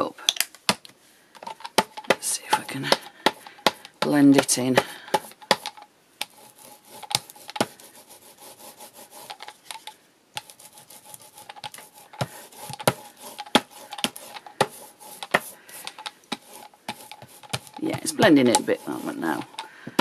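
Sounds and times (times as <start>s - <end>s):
paint roller rubbing on card: 1.8s - 9.7s, 10.4s - 20.0s
roller clicking: 11.1s - 20.0s.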